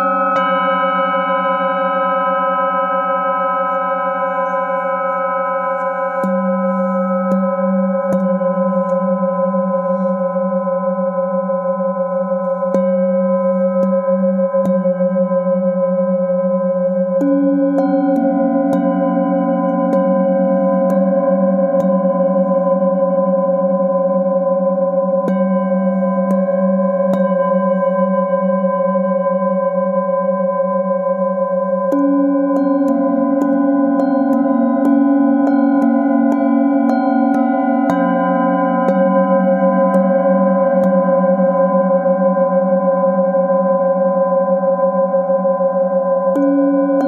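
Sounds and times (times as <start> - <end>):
singing bowl ringing: 0.0 - 47.0
mallet striking singing bowl: 31.9 - 41.5.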